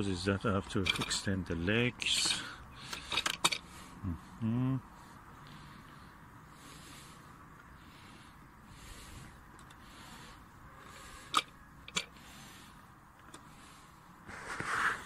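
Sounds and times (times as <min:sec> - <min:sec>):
metal tripod braces clicking: 0:00.7 - 0:01.3, 0:02.1 - 0:03.7, 0:11.1 - 0:12.3.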